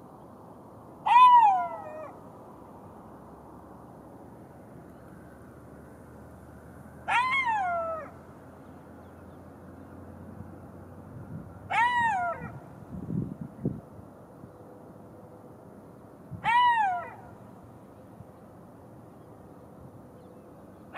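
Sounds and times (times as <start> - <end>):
jackal howling: 1.1 - 2.2, 7.1 - 8.2, 11.7 - 12.6, 16.4 - 17.2.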